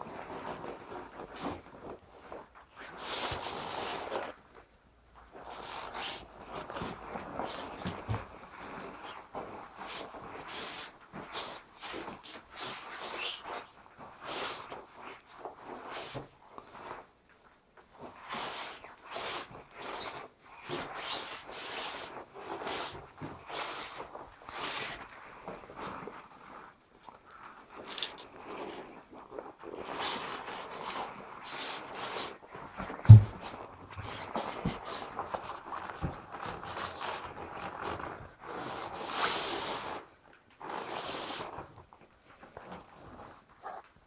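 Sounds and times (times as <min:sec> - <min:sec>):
rubber boots on concrete: 0:33.1 - 0:34.1.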